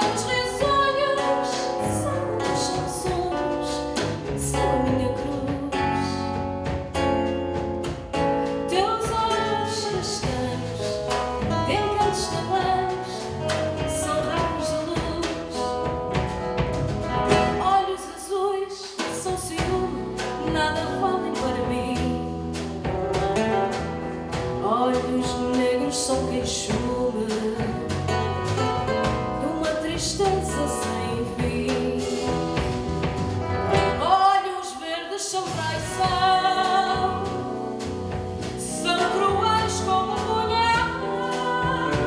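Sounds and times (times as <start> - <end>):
woman singing: 0.0 - 7.1, 8.1 - 16.3, 17.2 - 22.6, 24.6 - 32.8, 33.7 - 42.0
electric bass: 0.0 - 17.7, 19.4 - 34.1, 35.5 - 42.0
classical guitar: 0.0 - 17.8, 19.1 - 34.0
drum kit: 0.0 - 42.0.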